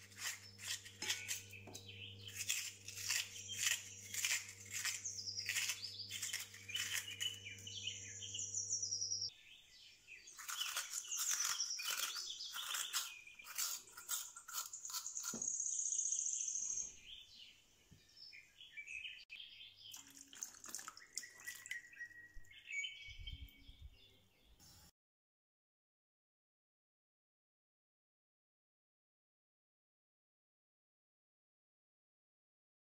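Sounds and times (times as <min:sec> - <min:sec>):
corer scraping potato: 0:00.0 - 0:08.4, 0:10.3 - 0:15.8.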